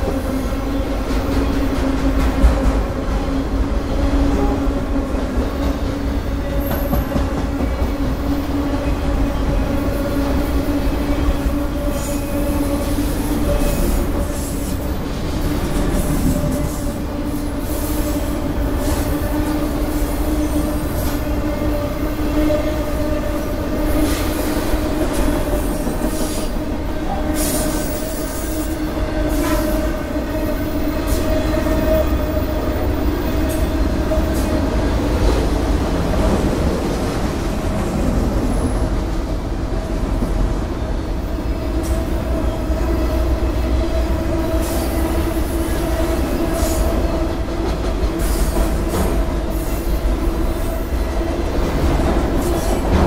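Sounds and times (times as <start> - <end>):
train wheels rumbling on rail: 0.0 - 53.0
train wheels squealing: 10.7 - 15.1.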